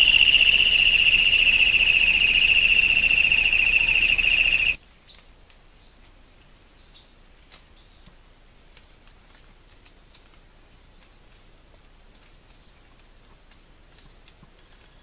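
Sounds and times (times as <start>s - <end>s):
high-pitched rippling buzz: 0.0s - 4.8s
ticks and rustles in leaf litter: 0.0s - 15.0s.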